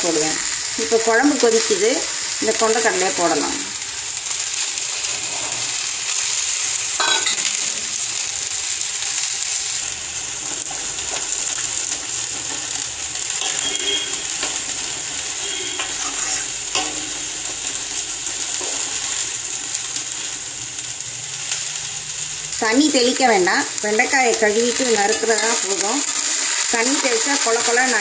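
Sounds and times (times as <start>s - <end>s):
curry boiling: 0.0s - 28.0s
vegetables sizzling in oil: 0.0s - 28.0s
ladle scraping iron pan: 15.6s - 17.2s.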